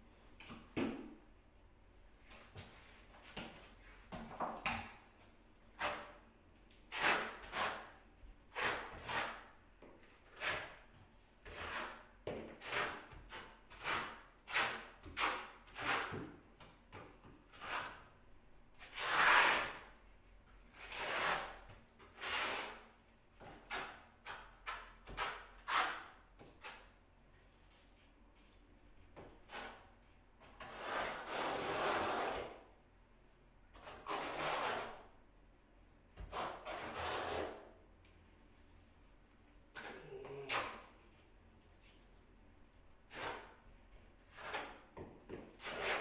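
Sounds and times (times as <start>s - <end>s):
trowel scraping adhesive on wall: 5.7s - 18.1s, 18.8s - 20.0s, 20.7s - 26.9s, 29.2s - 32.7s, 33.7s - 35.2s, 36.2s - 37.8s, 39.7s - 41.0s, 43.1s - 43.6s, 44.2s - 46.0s.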